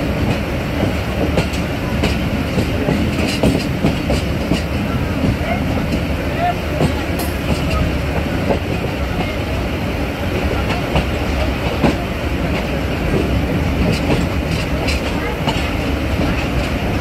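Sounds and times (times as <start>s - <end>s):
train rumble: 0.0s - 17.0s
wheels clicking over track: 10.4s - 17.0s.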